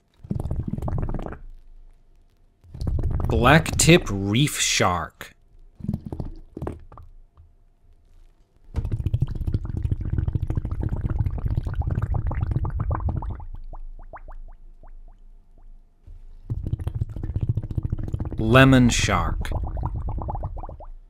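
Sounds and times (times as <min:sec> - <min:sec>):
single rising bubbles: 0:08.8 - 0:15.2, 0:19.1 - 0:21.0
underwater bubbles gurgling: 0:08.8 - 0:15.2, 0:16.5 - 0:21.0.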